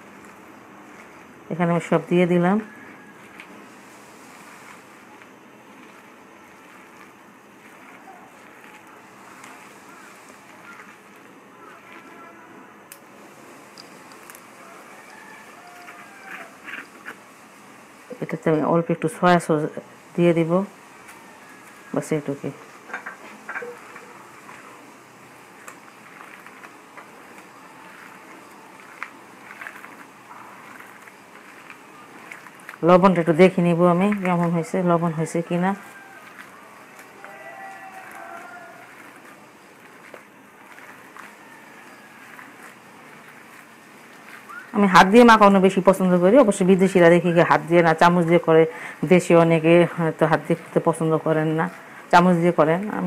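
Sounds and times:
hands squelching mashed potato: 0.0 - 17.2, 23.2 - 52.6
steady low hiss: 0.0 - 53.0.

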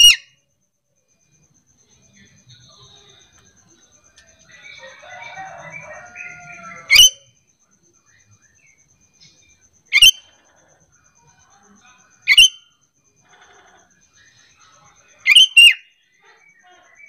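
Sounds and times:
faint bird chirps: 0.0 - 17.0
bird sharp calls: 15.3 - 15.8.

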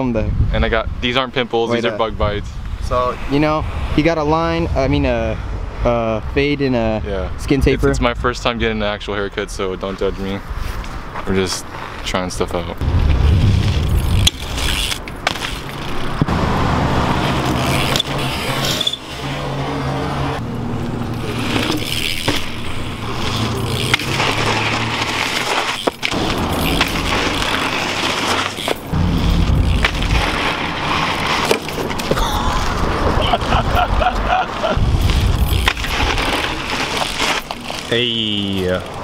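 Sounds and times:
bike tyres rolling on dirt path: 8.8 - 19.6, 20.2 - 39.0
bike knocking: 21.0 - 32.2.

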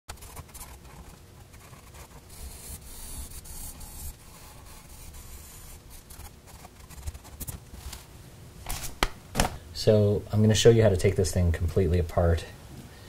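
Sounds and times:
marker scratching on paper: 0.1 - 8.0.

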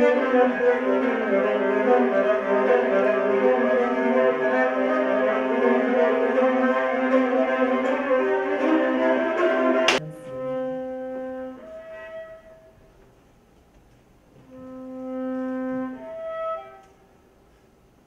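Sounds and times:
bowed string instruments playing: 0.0 - 13.0, 14.4 - 17.2.

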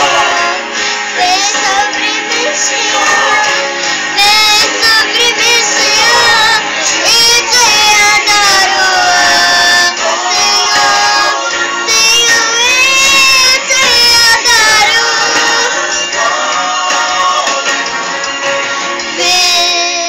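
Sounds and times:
musical accompaniment: 0.0 - 20.0
girl singing: 1.2 - 15.7, 19.1 - 20.0.

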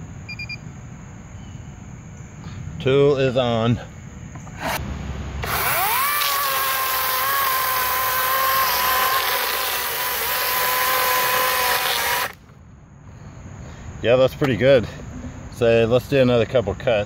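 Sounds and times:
electric chainsaw cutting log: 5.4 - 12.4.

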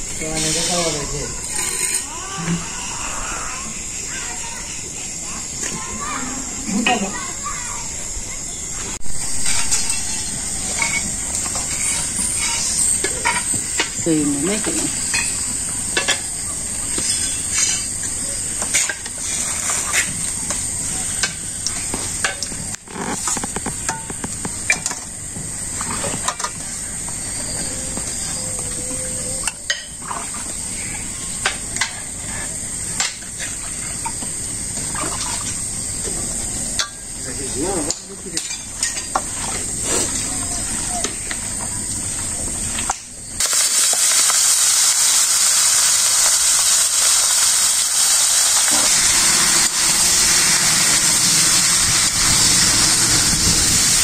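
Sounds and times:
steady hiss: 0.0 - 27.4, 29.2 - 54.0
metal bowls and utensils clinking: 0.2 - 2.1, 9.2 - 20.2, 36.8 - 40.6.

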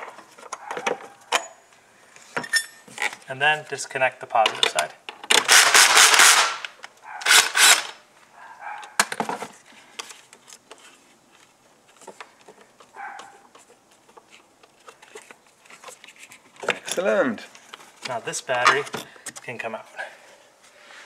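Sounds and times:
cordless drill running: 7.3 - 7.9.

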